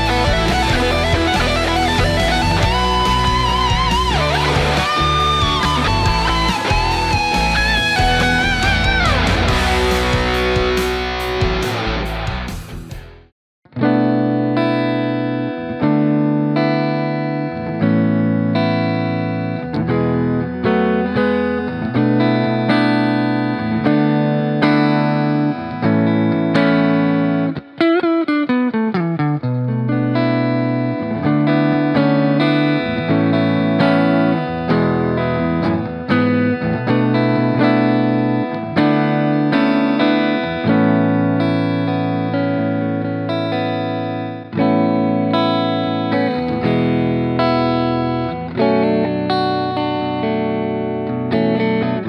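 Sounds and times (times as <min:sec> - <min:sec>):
backing track: 0:00.0 - 0:13.3
electric guitar with effects: 0:00.0 - 0:52.0.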